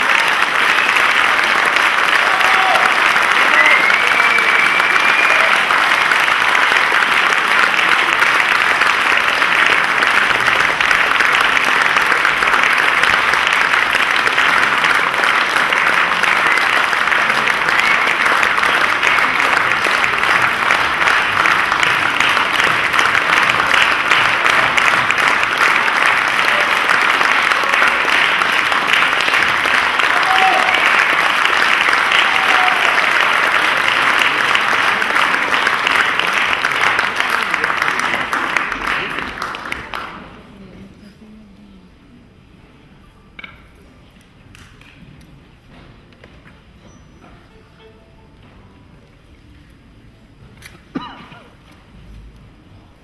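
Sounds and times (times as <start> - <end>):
audience applauding: 0.0 - 40.6.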